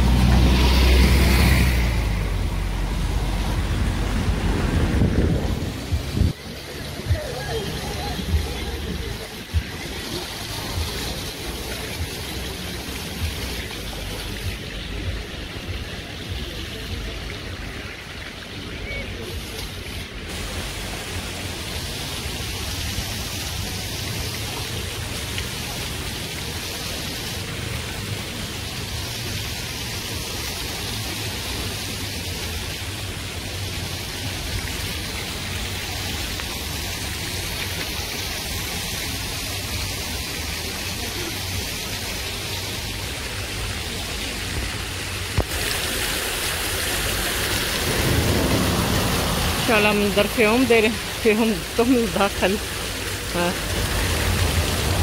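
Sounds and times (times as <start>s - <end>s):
fountain jets splashing on stone: 0.0s - 55.0s
low water rumble: 0.0s - 55.0s.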